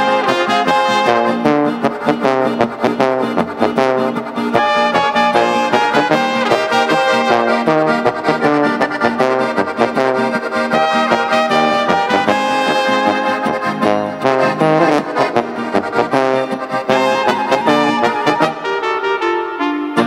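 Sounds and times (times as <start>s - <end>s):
brass band music: 0.0s - 20.0s.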